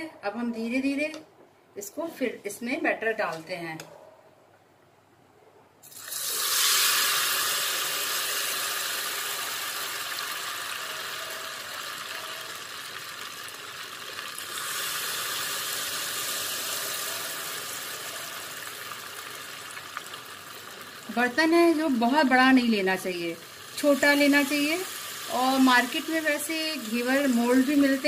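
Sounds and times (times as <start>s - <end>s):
batter sizzling in hot oil: 5.8s - 28.0s.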